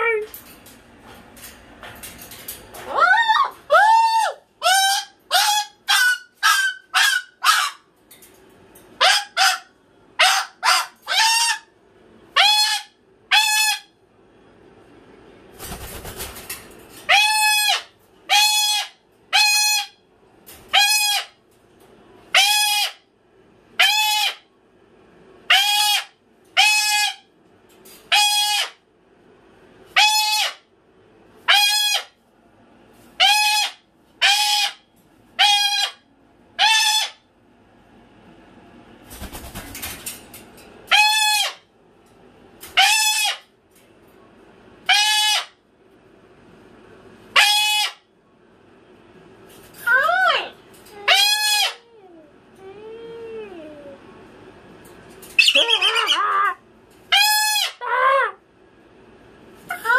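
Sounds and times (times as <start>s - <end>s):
cockatoo screaming: 2.8s - 7.8s, 47.4s - 48.0s, 49.9s - 51.9s, 55.4s - 58.4s.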